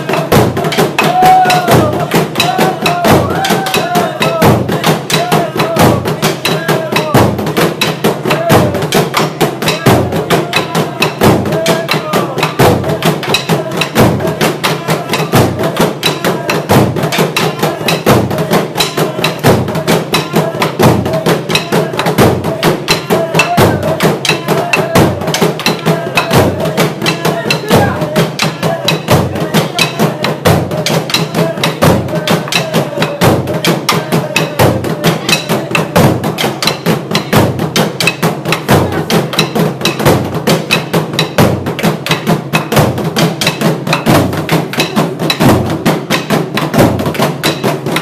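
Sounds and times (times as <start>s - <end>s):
voices calling out: 0.0s - 7.2s, 9.6s - 36.7s
drums beaten with wooden sticks: 0.0s - 48.0s.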